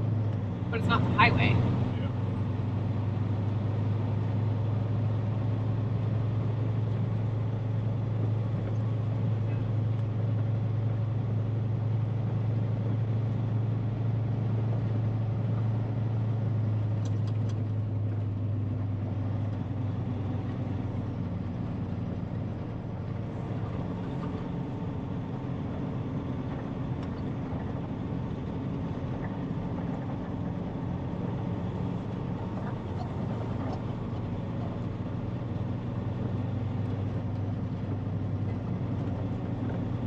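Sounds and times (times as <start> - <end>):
truck diesel engine droning: 0.0 - 40.0.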